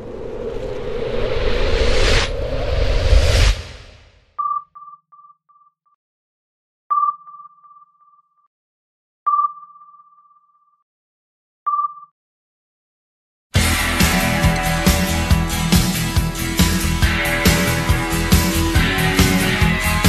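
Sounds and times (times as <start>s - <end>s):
sonar pings with echoes: 7.0s - 8.5s, 9.3s - 10.8s
loud rock music: 13.6s - 20.0s.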